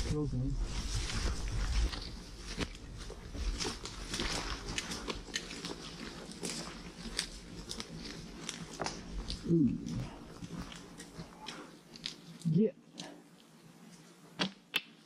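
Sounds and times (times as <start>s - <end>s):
footsteps on rocky trail: 0.5s - 12.4s.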